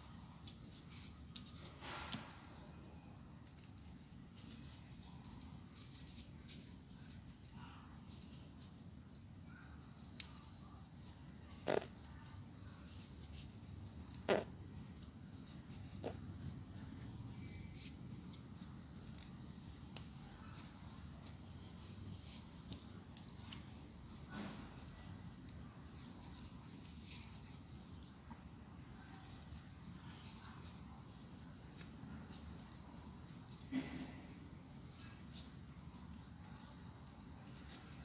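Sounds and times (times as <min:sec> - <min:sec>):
paper rustling and crinkling: 0:00.4 - 0:02.7.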